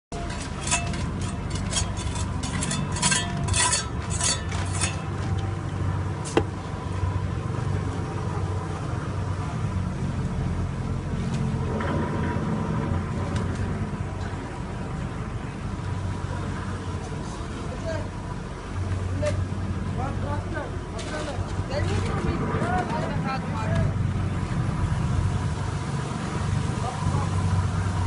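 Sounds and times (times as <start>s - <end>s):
shovel scraping and clinking: 0.1s - 5.4s.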